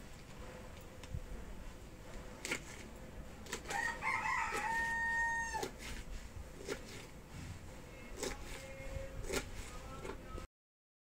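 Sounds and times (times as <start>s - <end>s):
rooster crowing: 3.7s - 5.7s.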